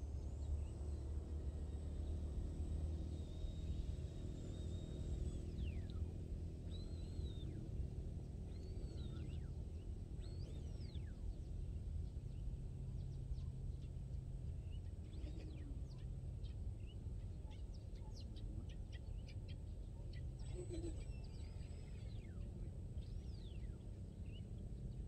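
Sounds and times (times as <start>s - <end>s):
birds whistling calls: 6.6s - 7.7s, 8.3s - 11.5s.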